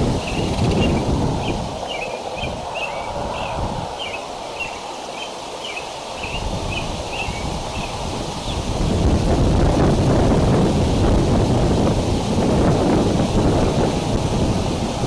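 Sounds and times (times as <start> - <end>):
wind buffeting microphone: 0.0 - 15.0
wind rustling leaves: 0.0 - 15.0
high bird chirps: 0.2 - 8.0.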